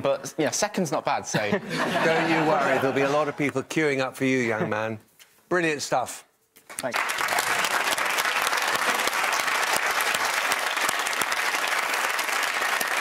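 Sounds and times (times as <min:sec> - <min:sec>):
audience applauding: 0:06.7 - 0:13.0.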